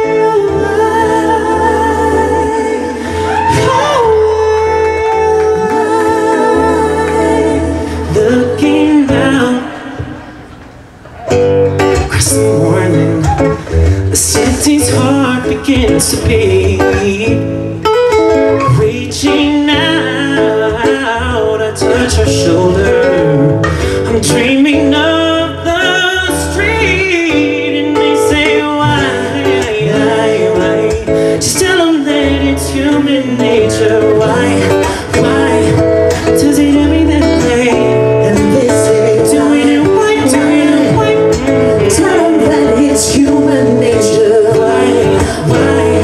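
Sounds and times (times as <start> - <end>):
acoustic guitar: 0.0 - 46.0
man singing melodic runs: 18.6 - 46.0.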